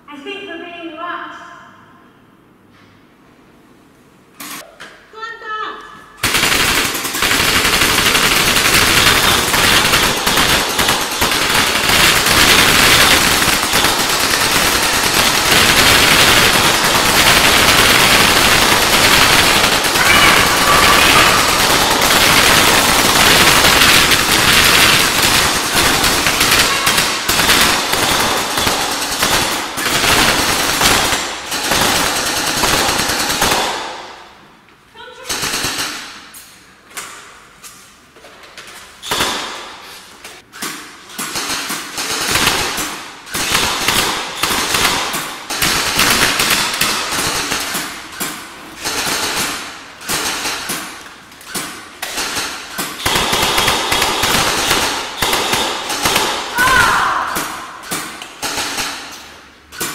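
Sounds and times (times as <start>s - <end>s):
automatic rifle fire: 6.2s - 34.3s, 35.3s - 36.3s, 39.1s - 39.8s, 41.3s - 48.2s, 48.8s - 59.2s.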